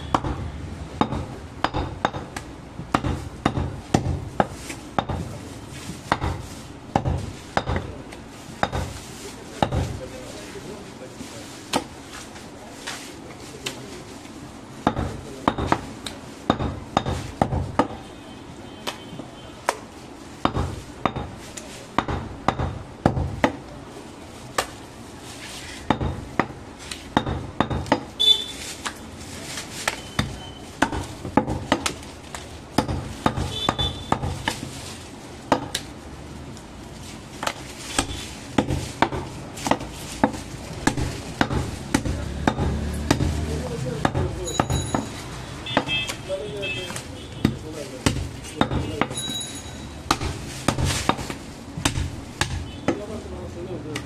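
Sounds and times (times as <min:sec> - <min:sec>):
knife chopping meat on wood: 0:00.0 - 0:05.2, 0:29.8 - 0:32.0, 0:32.8 - 0:34.7, 0:37.4 - 0:44.3, 0:46.9 - 0:49.1, 0:50.0 - 0:53.1.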